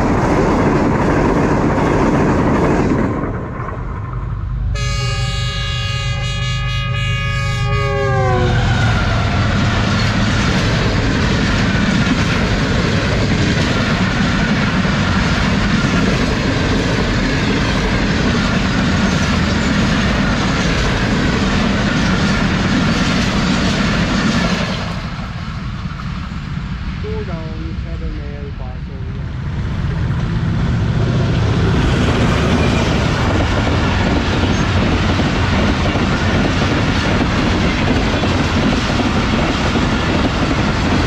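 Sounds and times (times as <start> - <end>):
train wheels clattering over rails: 0.0 - 4.3, 9.0 - 26.6, 30.0 - 41.0
train horn: 4.7 - 9.5.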